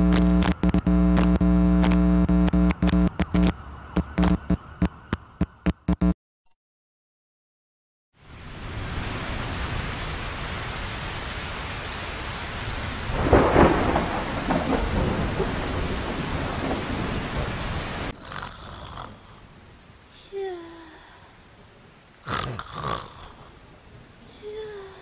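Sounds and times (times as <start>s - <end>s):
heavy rain: 8.2s - 25.0s
thunderclap rumbling: 13.0s - 18.1s.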